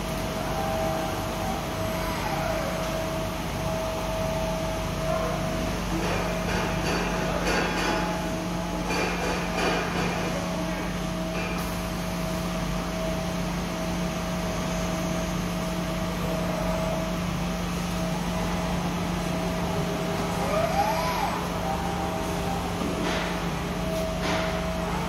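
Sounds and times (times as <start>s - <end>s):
steady mechanical hum: 0.0s - 25.0s.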